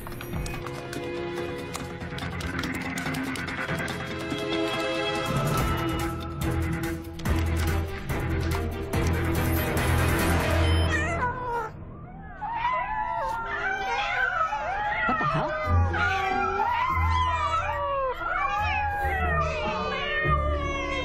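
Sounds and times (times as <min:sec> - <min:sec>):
low background music: 0:00.0 - 0:21.0
many cats meowing: 0:10.9 - 0:21.0.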